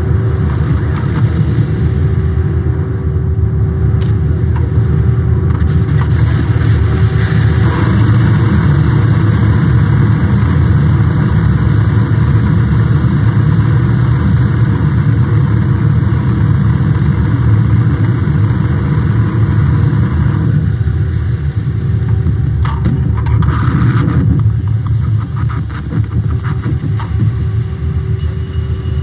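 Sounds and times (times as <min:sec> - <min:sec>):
loud low rumbling noise: 0:00.0 - 0:29.0.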